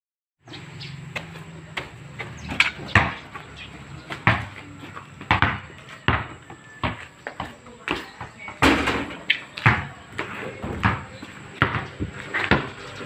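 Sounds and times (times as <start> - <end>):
basketball thuds on hard surfaces: 1.8 - 3.3, 4.1 - 4.6, 5.2 - 7.0, 7.9 - 9.9, 10.6 - 12.8.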